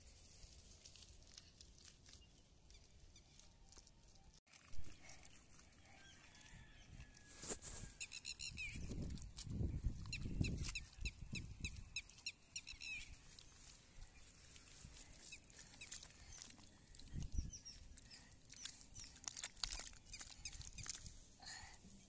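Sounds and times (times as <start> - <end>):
bird chirping: 8.0 - 9.0, 9.9 - 14.5.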